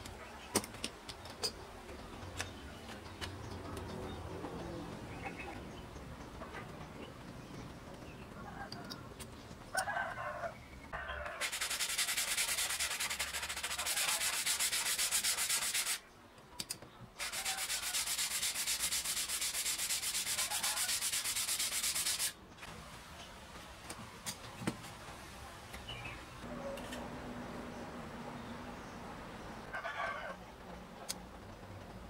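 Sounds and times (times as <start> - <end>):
sandpaper rubbing on wood: 11.4 - 16.0, 17.2 - 22.4.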